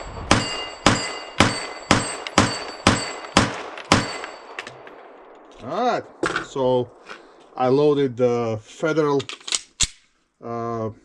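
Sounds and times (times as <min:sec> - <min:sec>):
metallic ring of steel targets: 0:00.0 - 0:05.6
pistol shots: 0:00.3 - 0:05.4.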